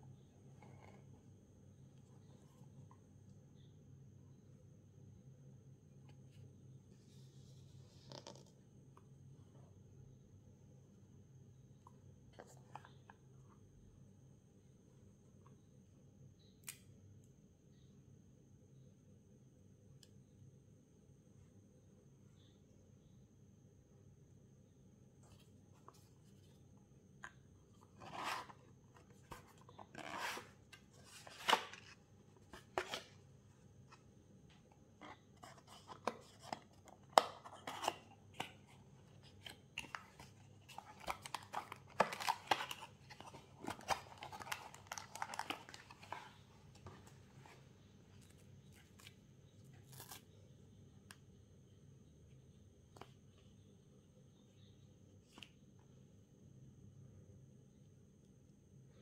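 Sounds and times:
packaging rustling: 0:39.4 - 0:47.1.

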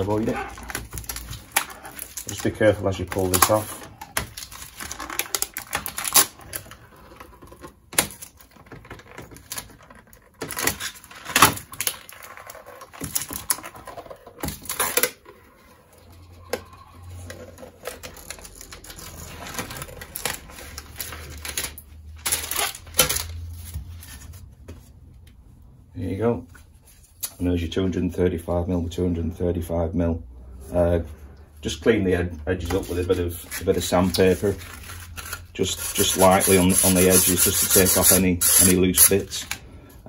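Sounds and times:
plastic film snapping: 0:00.0 - 0:06.8, 0:07.9 - 0:13.7, 0:17.2 - 0:23.5
plastic film peeling crackle: 0:00.0 - 0:15.3, 0:15.9 - 0:23.8, 0:32.7 - 0:39.6.

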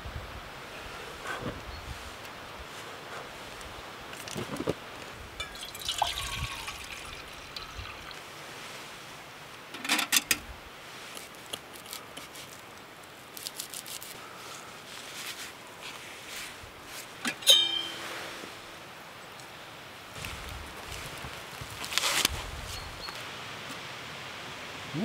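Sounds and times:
steady light hiss: 0:00.0 - 0:25.0
metal kettle clattering: 0:05.4 - 0:07.7, 0:09.8 - 0:10.4.

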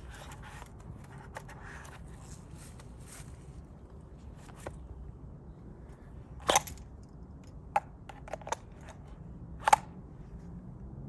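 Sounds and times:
pistol clicking into plastic holster: 0:06.4 - 0:09.0.

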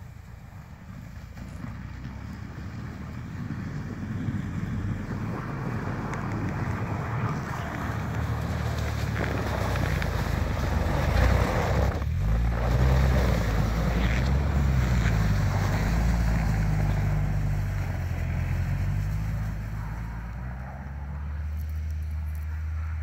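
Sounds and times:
engine working hard under load: 0:00.0 - 0:23.0
wind buffeting microphone: 0:01.9 - 0:12.2.

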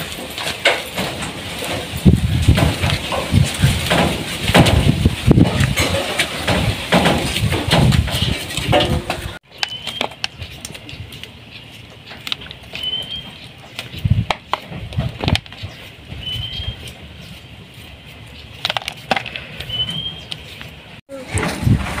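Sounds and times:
loud knocking and rustling: 0:00.0 - 0:10.5, 0:12.0 - 0:17.2
bird chirp: 0:09.4 - 0:14.3, 0:15.0 - 0:18.6, 0:19.3 - 0:20.8.

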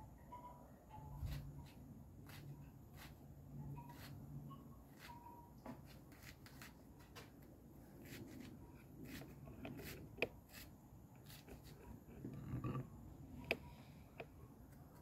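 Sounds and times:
knife slicing onion: 0:08.0 - 0:11.8.

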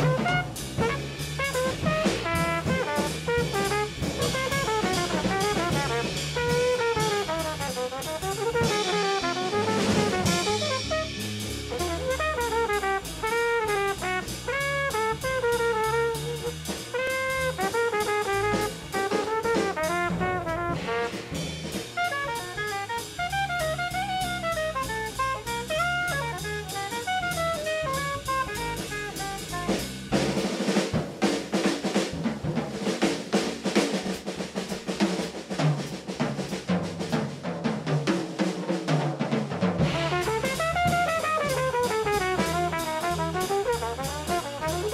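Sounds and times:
congas: 0:00.0 - 0:22.4, 0:28.8 - 0:44.9
bass: 0:00.0 - 0:44.9
drum kit: 0:00.0 - 0:44.9
saxophone improvising: 0:22.1 - 0:29.8, 0:40.0 - 0:43.7.

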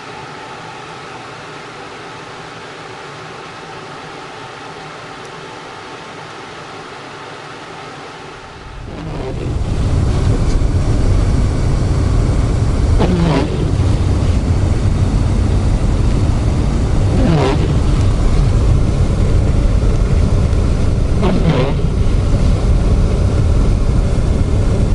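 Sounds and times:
car engine and road rumble: 0:08.1 - 0:24.9
windshield wipers sweeping: 0:08.4 - 0:24.9.

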